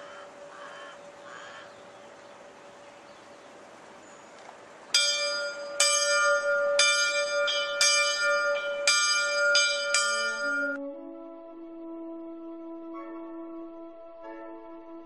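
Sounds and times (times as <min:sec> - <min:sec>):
bell ringing: 0:05.0 - 0:10.8.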